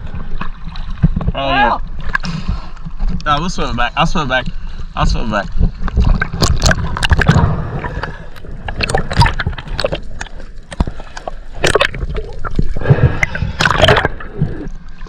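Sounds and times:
water sloshing and gurgling: 0.0 - 15.0
sharp splashes: 6.2 - 14.4.

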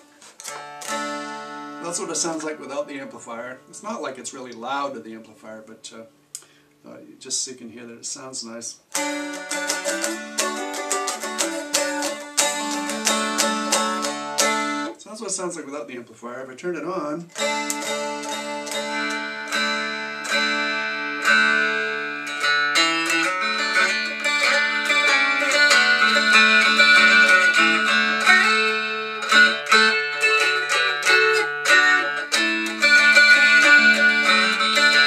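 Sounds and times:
electric dulcimer picked tune: 0.0 - 4.0, 8.9 - 15.0, 17.3 - 35.0.

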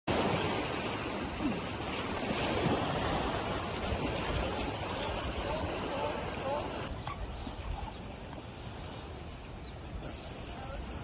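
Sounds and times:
waves washing onto beach: 0.1 - 11.0.

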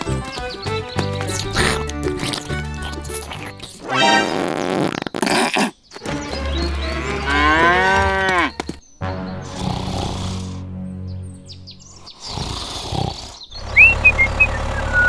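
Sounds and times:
cow mooing: 6.7 - 8.6.

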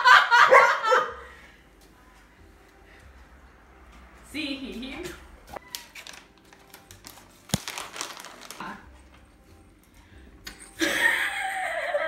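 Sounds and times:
crinkling handling noise: 5.5 - 9.5.

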